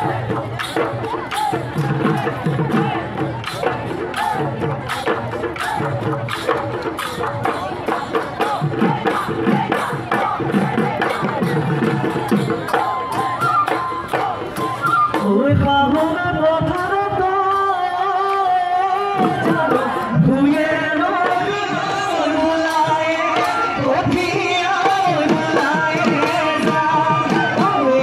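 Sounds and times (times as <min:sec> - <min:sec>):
dhol drums beating: 0:00.0 - 0:28.0
person singing a melody: 0:15.2 - 0:28.0.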